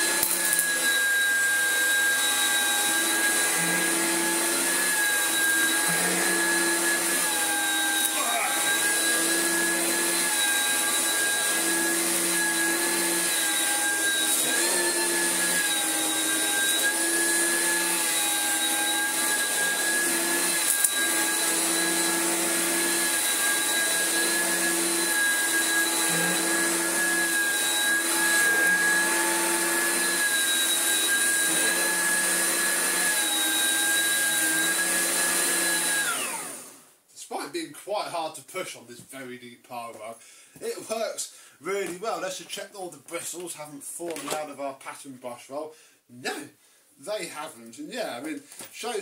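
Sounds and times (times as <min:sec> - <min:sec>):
vacuum cleaner running: 0:00.0 - 0:36.9.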